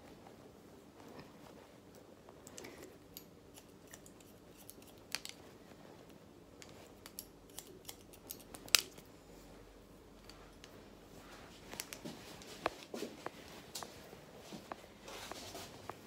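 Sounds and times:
scissors snipping hair: 0:02.5 - 0:05.4, 0:06.6 - 0:09.1.

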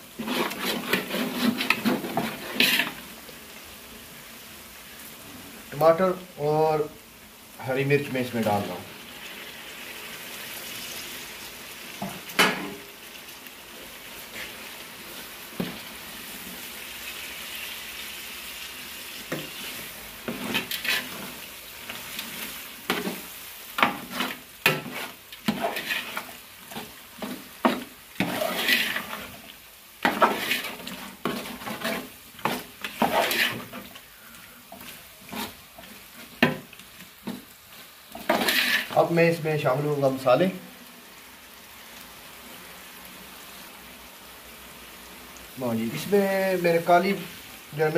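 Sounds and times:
tomatoes sizzling in hot oil: 0:00.0 - 0:47.9
metal ladle scraping a pot: 0:00.1 - 0:03.0, 0:19.3 - 0:21.4, 0:23.8 - 0:29.4, 0:30.0 - 0:34.0, 0:38.1 - 0:39.0.

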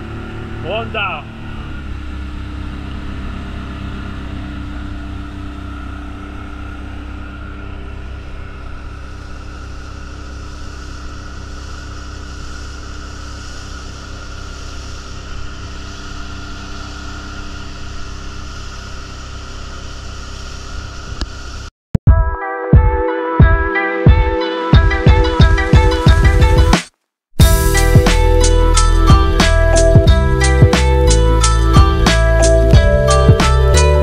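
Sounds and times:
outboard motor running: 0:00.0 - 0:21.7, 0:27.4 - 0:34.0.

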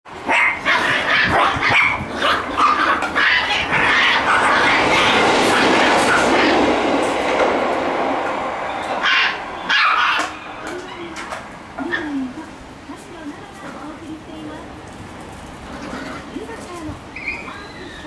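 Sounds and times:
puppies barking: 0:00.2 - 0:06.7, 0:08.8 - 0:12.4
rushing noise with low rumble: 0:00.2 - 0:17.1.

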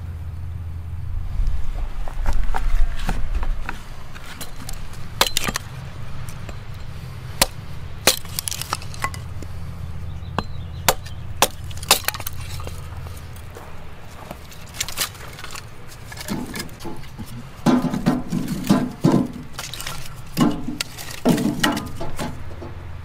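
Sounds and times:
steady low rumble: 0:00.0 - 0:23.0
wood knocks and snaps: 0:14.8 - 0:22.8.

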